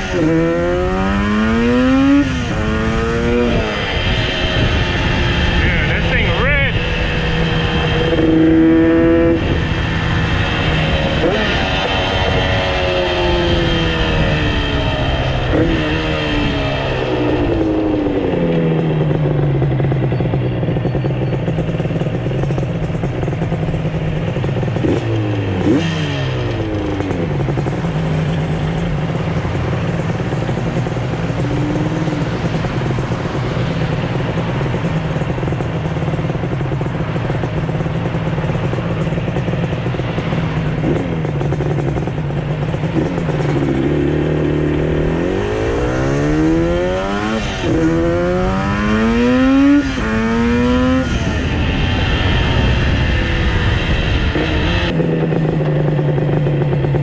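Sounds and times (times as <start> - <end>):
two-stroke motorcycle engine: 0.0 - 57.0.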